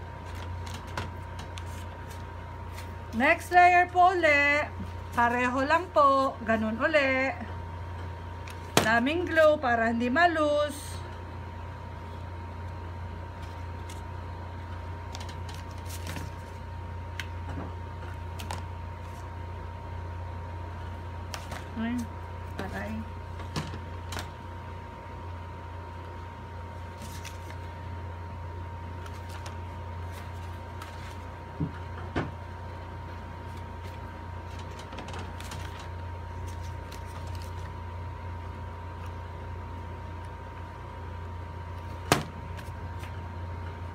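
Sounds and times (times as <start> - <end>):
steady low hum: 0.0 - 43.9
cardstock crackling and tapping: 15.1 - 19.2, 33.5 - 37.8.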